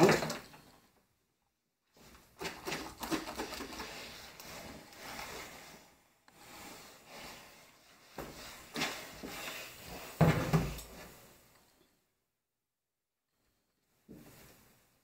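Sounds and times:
iron sliding over fabric: 4.1s - 10.2s.

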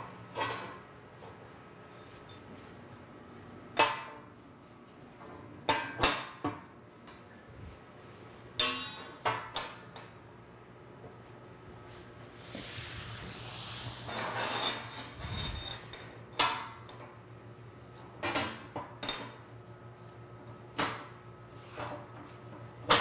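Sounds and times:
broad rustling noise: 11.3s - 15.9s.

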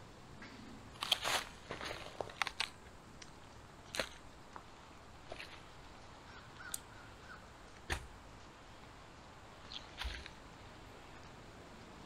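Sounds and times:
firewood set into sand: 0.5s - 6.7s, 9.7s - 11.3s.

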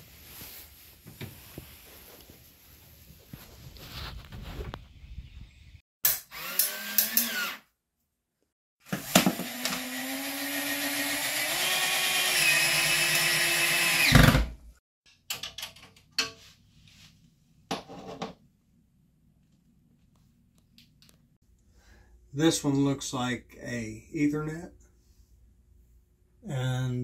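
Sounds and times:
cordless drill driving a screw: 6.2s - 7.6s, 9.0s - 14.4s.

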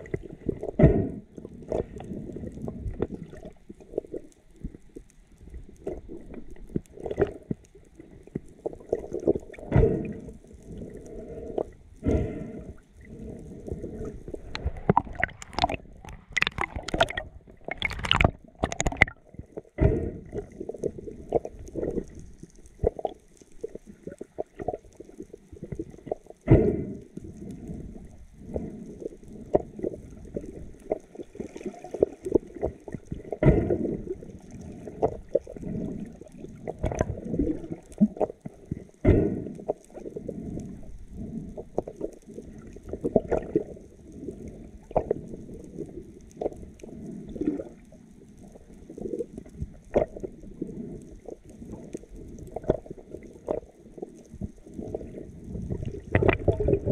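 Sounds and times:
crackling bursts: 0.0s - 56.9s
water gurgling and sloshing: 0.0s - 56.9s.

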